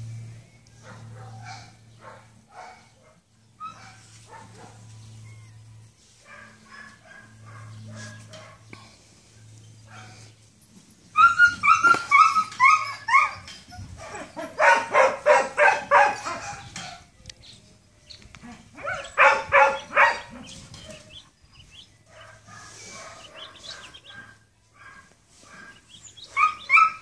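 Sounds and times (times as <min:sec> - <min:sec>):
dog barking and yelping: 0:11.2 - 0:17.0, 0:18.4 - 0:21.2, 0:22.1 - 0:27.0.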